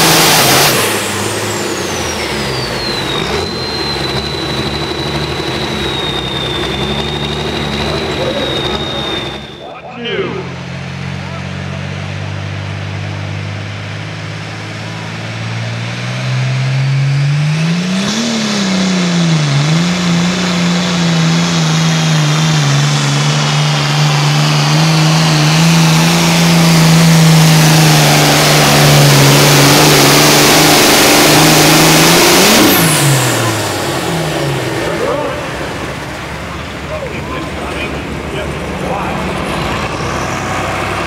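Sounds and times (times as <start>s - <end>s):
tractor engine revving: 0.0s - 41.0s
high whine: 1.0s - 11.7s.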